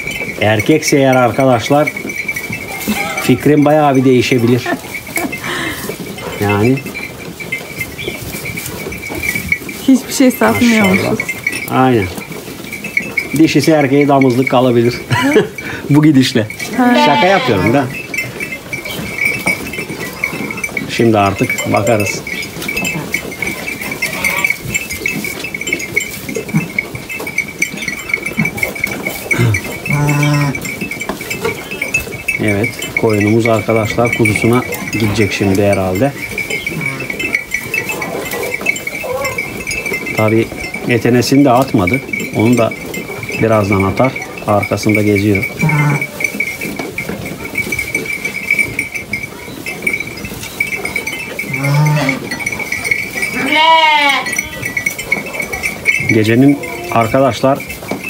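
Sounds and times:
rustling of hay: 0.0s - 58.0s
faint low sheep calls: 16.8s - 17.8s.

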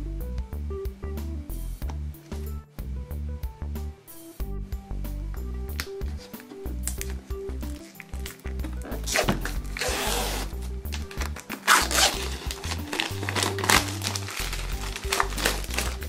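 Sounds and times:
background music with bass line: 0.0s - 16.0s
plastic wrap crinkling and tearing: 5.8s - 16.0s.

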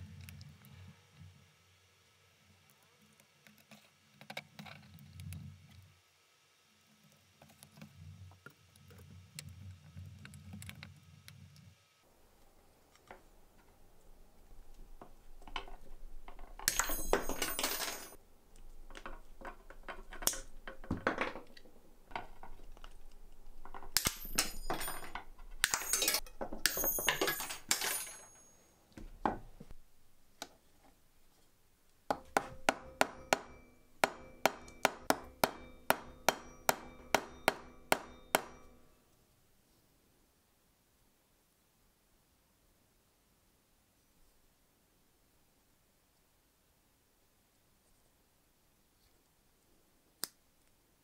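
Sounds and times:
hand tools scraping and clicking: 15.0s - 28.6s
hammer striking metal on anvil: 16.7s - 18.2s, 24.0s - 28.6s, 32.1s - 39.0s.

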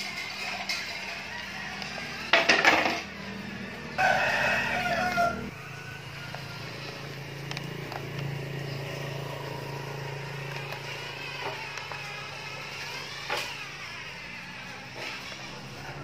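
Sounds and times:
rooster crowing: 0.7s - 7.4s.

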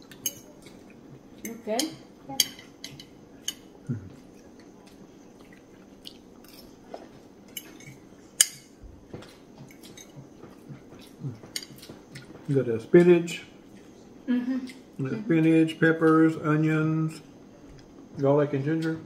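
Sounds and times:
person chewing: 3.0s - 8.3s, 9.1s - 12.5s.

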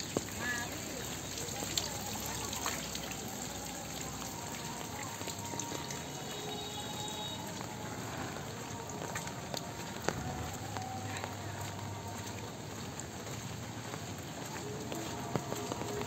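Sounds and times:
rain on wet pavement: 0.0s - 16.0s.

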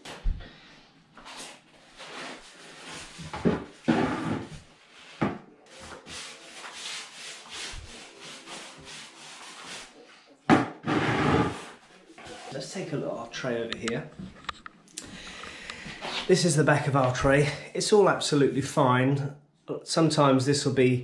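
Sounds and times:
brush scrubbing a floor: 1.2s - 10.2s.

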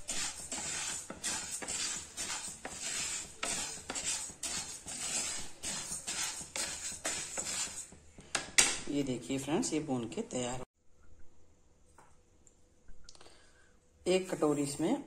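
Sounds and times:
wooden spatula stirring: 0.0s - 8.6s.

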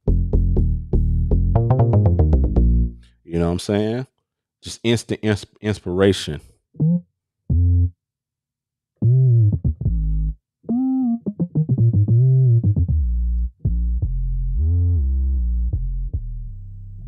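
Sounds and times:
deep synth bass notes: 0.0s - 3.1s, 6.8s - 7.9s, 9.0s - 17.0s.

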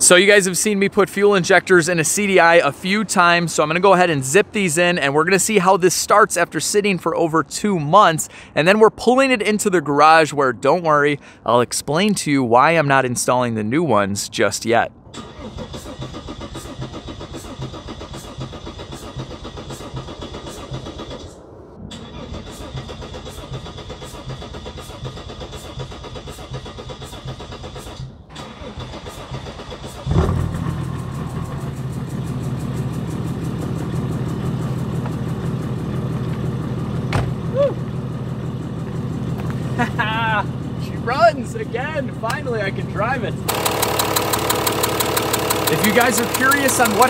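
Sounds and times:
diesel engine cranking: 0.0s - 7.7s, 15.0s - 47.0s
diesel engine running: 28.3s - 47.0s.

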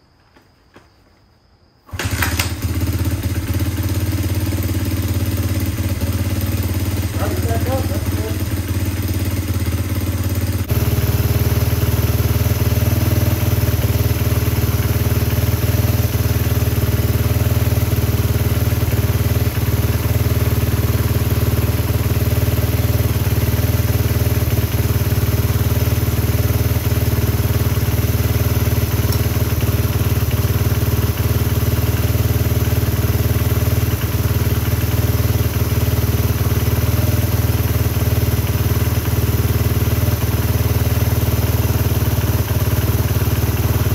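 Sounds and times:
motorcycle engine idling: 1.9s - 43.9s.

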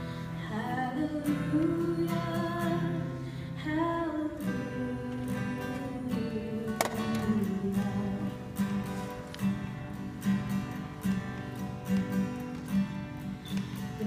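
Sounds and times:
acoustic guitar strumming: 0.0s - 14.0s
woman singing: 0.2s - 8.9s.

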